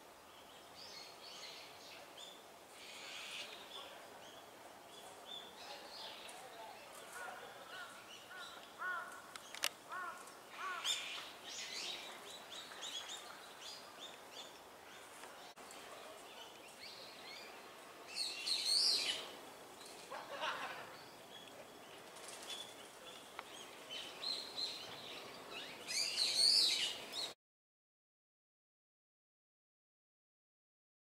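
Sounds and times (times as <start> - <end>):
magpies calling: 2.8 - 3.6.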